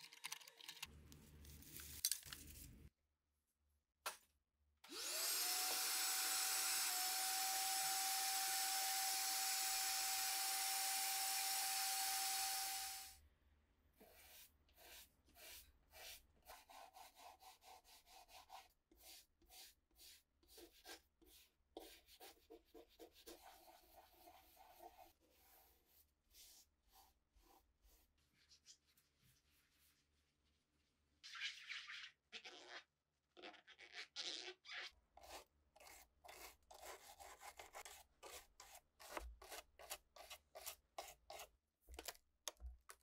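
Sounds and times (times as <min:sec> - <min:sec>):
vacuum cleaner running: 0:04.9 - 0:13.1.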